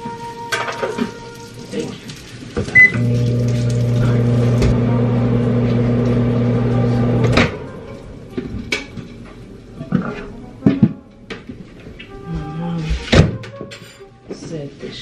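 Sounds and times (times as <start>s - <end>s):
microwave oven humming: 2.8s - 7.9s.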